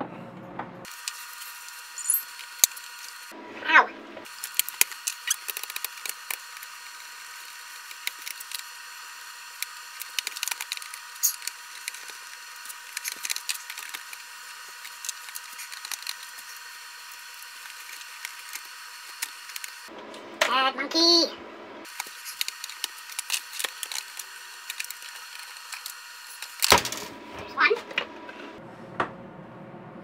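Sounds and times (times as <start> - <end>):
screwdriver clicks and scrapes: 9.6 - 14.2, 21.9 - 26.7
plastic parts clicking: 10.0 - 12.2.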